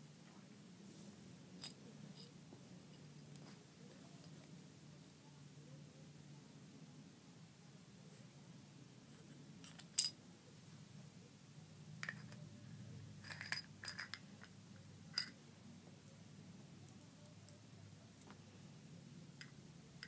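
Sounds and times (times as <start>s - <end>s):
small objects clicking and clinking: 13.2s - 14.5s, 15.1s - 15.4s.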